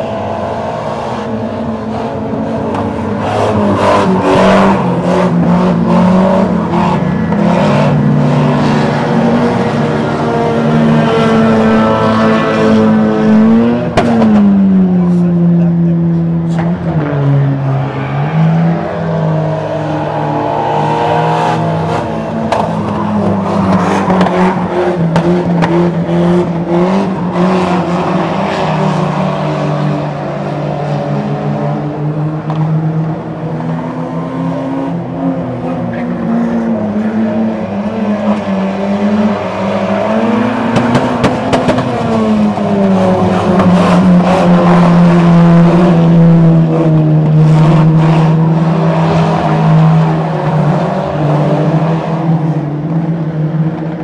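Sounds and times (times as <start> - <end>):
racing car engines: 0.0 - 54.0.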